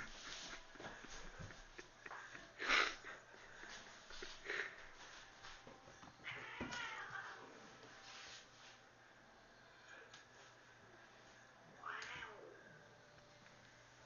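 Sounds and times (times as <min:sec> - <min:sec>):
cat yowling: 0:11.8 - 0:12.6.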